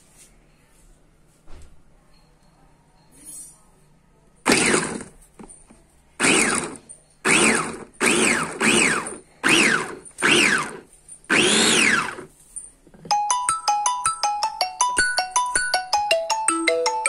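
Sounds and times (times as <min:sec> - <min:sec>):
electric chopper motor whirring: 0:04.5 - 0:05.1, 0:06.2 - 0:12.3.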